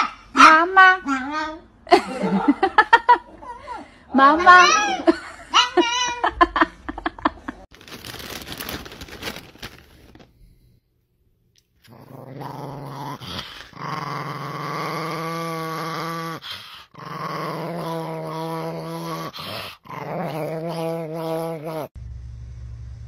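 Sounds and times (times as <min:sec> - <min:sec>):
plastic snack bag crinkling: 0:07.7 - 0:10.4
small dog growling: 0:11.8 - 0:22.0.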